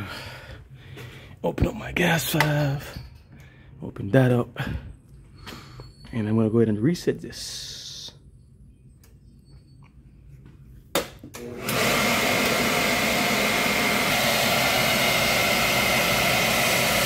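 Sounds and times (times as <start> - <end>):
burner blower whining: 11.0 - 17.0.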